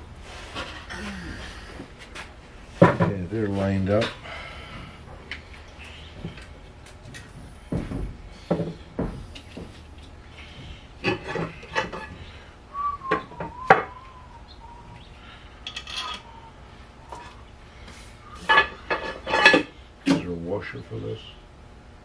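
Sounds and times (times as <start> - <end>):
faint wavering whistle tone: 12.7 - 15.1, 15.9 - 16.6
metal tools clinking: 15.6 - 16.3.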